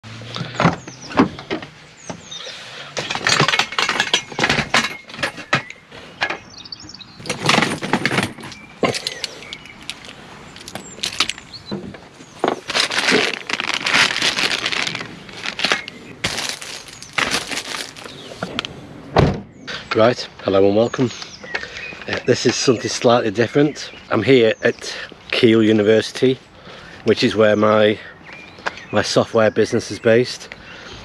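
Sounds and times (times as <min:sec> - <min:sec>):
metal tripod legs clinking: 0:07.2 - 0:11.5
rustling: 0:07.2 - 0:18.8.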